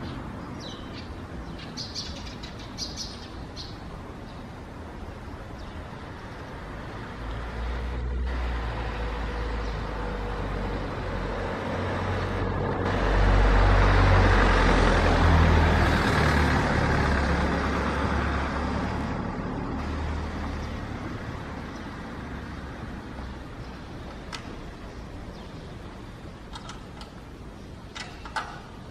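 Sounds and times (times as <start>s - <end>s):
motor vehicle passing: 5.5s - 26.2s.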